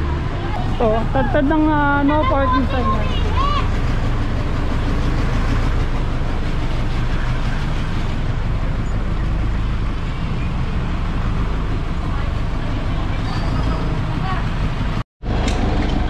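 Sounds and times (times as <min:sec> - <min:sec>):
street noise: 0:00.0 - 0:16.0
vehicle engine idling: 0:00.0 - 0:16.0.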